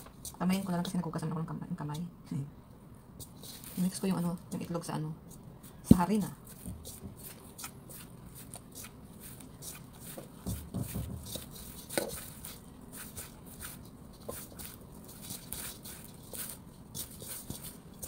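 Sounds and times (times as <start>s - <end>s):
hands mixing dough in a bowl: 3.2s - 18.0s.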